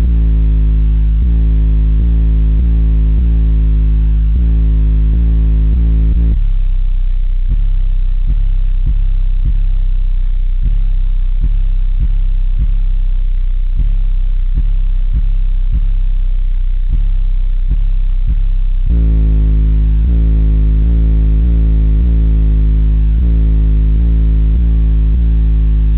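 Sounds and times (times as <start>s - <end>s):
deep bass from subwoofers: 0.0s - 25.9s
rap music playing: 0.0s - 25.9s
beat hitting: 7.5s - 9.8s, 10.6s - 12.9s, 13.8s - 16.1s, 16.9s - 22.5s.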